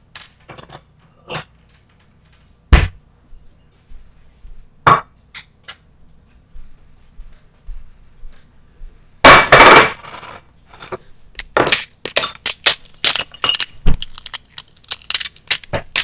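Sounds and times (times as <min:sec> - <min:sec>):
taco crunching: 0:13.9 - 0:16.0.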